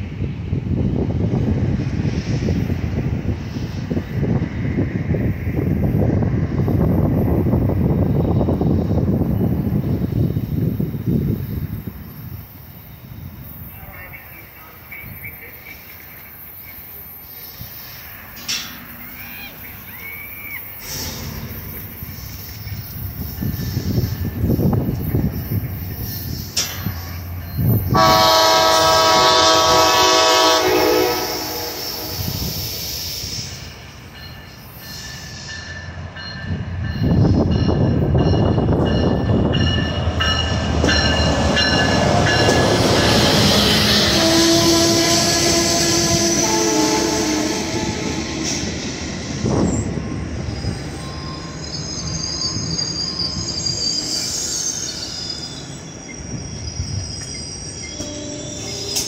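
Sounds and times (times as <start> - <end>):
train running noise: 0.0 - 59.0
wheel and brake squeal: 16.6 - 28.1, 40.2 - 59.0
train clunk: 17.8 - 19.8, 20.5 - 30.2, 33.6 - 46.4, 57.0 - 59.0
locomotive air horn blast: 27.9 - 32.3, 43.4 - 48.4.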